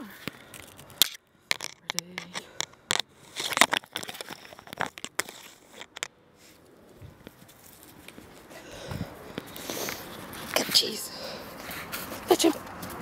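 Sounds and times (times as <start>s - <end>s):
plastic bottle clicks and rustles: 0.2s - 6.1s.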